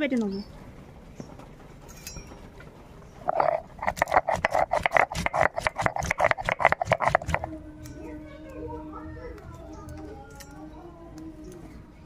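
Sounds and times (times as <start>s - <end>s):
stone grinding spices: 3.2s - 7.5s.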